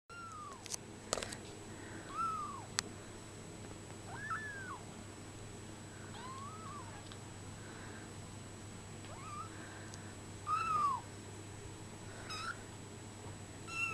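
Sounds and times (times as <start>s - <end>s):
kittens mewing: 6.1s - 7.1s, 9.0s - 9.6s, 10.5s - 11.1s, 12.2s - 12.6s.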